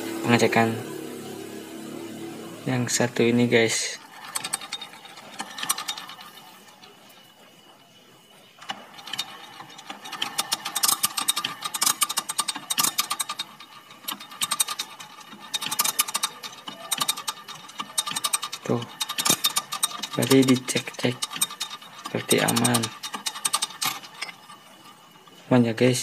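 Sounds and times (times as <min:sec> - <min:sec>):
motorcycle engine clicking and ratcheting: 0:02.6 - 0:26.0.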